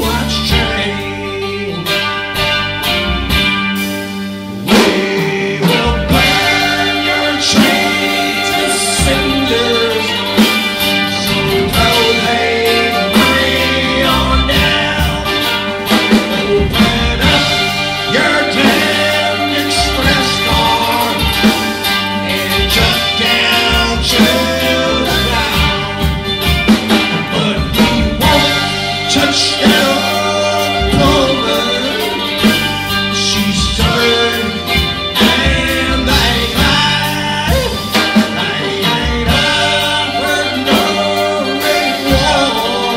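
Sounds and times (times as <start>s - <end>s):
rock band playing: 0.0s - 42.9s
drum hits: 4.7s - 9.7s.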